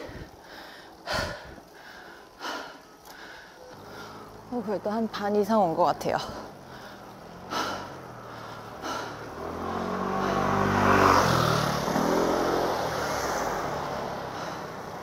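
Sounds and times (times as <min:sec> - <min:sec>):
vehicle engine passing by: 0:06.2 - 0:15.0.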